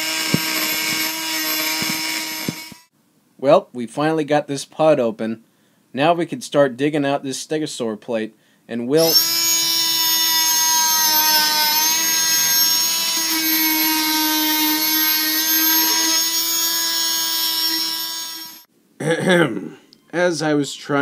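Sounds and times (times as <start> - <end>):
buzz saw whining: 0.0 - 2.9, 9.0 - 18.7.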